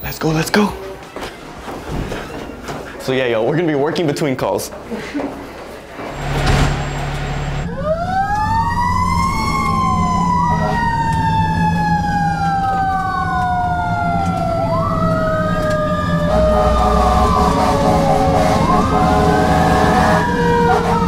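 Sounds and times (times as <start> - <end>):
truck engine running: 6.1 - 7.8
fire engine siren wailing: 7.1 - 21.0.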